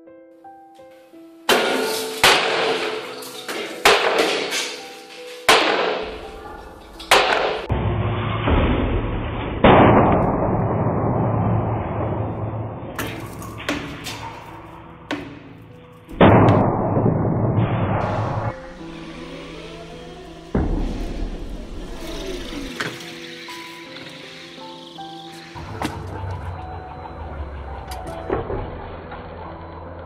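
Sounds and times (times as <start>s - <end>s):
low machinery rumble: 25.4s - 30.0s.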